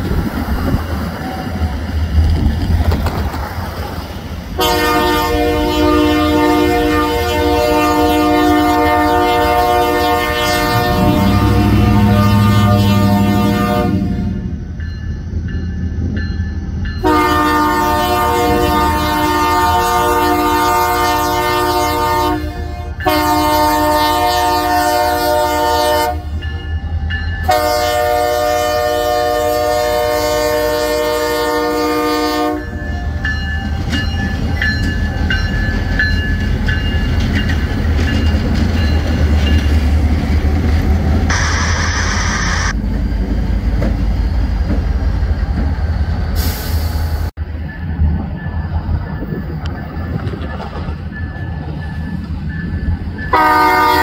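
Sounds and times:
train wheels rolling: 0.0 - 13.7, 22.5 - 54.0
locomotive air horn blasts: 4.6 - 14.5, 17.0 - 26.3, 27.4 - 33.2, 53.3 - 54.0
diesel engines rumbling: 8.3 - 14.5
brief hiss: 41.3 - 42.7, 46.4 - 47.3.

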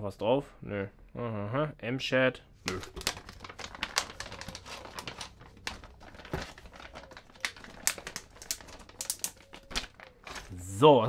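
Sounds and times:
plastic pouch crinkling: 2.6 - 10.6.

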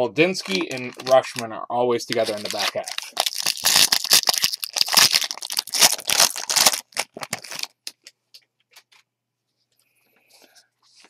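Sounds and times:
foil wrapper crinkling: 0.4 - 1.5, 2.1 - 8.0.

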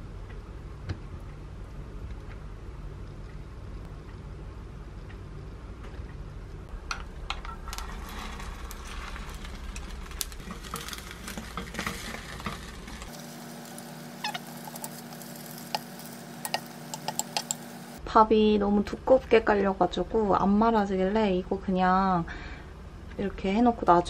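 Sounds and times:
low hum: 0.0 - 18.9
egg batter sizzling in a pan: 7.5 - 18.0
chopsticks clicking against pan: 14.2 - 17.6.

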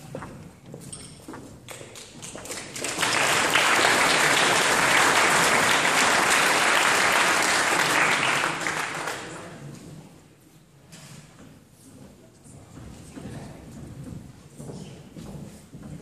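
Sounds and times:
audience applauding: 1.8 - 9.6.

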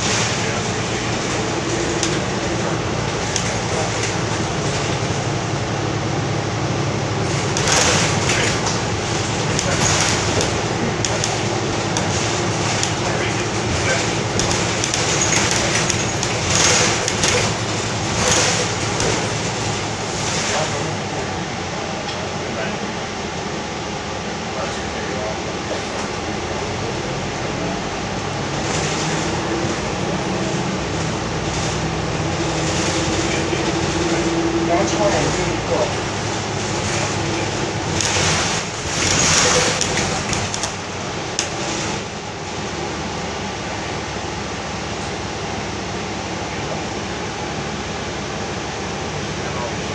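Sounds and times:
bus engine and road noise: 0.0 - 49.9
rattles: 7.3 - 21.0, 34.9 - 42.1
short rattling clicks: 13.7 - 19.6.

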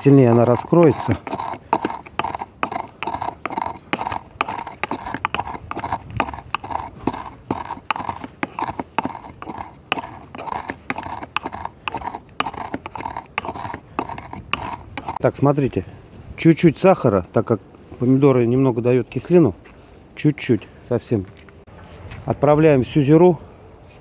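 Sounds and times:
pestle grinding seeds in mortar: 0.0 - 15.2.

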